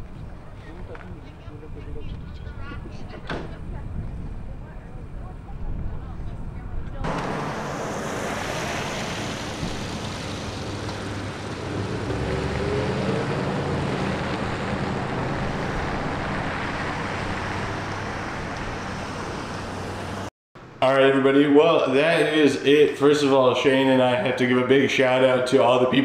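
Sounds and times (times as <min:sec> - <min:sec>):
distant rocket engine rumble: 0:00.1 - 0:20.2.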